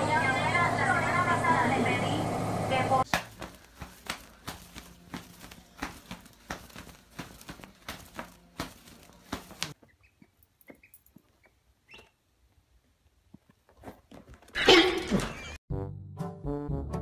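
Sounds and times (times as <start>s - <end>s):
duckling peeping: 9.9s - 12.2s.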